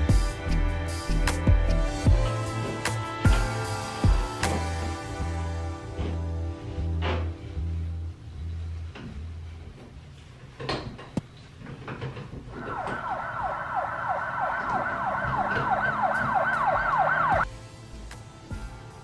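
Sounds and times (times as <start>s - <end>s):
electronic siren yelping: 12.5s - 17.4s.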